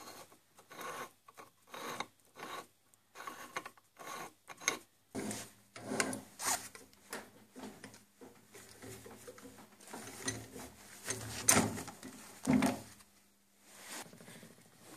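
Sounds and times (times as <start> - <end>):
metal threads scraping: 0.0 - 6.6.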